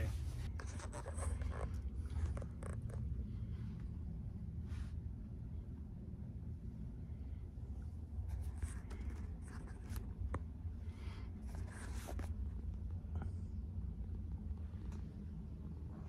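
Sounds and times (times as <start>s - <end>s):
phone handling rubbing and scraping: 0.0s - 3.1s
steady low hum: 0.0s - 16.0s.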